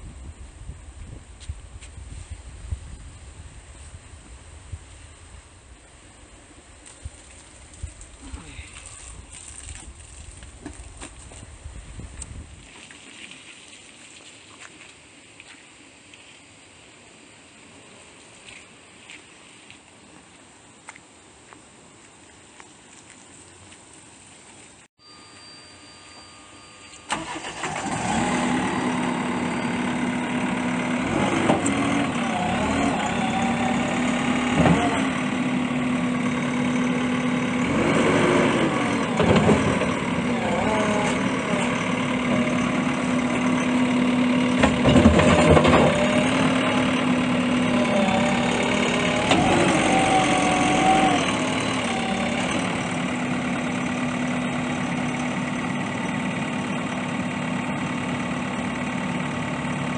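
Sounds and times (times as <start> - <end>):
diesel engine starting and idling: 26.4 - 59.9.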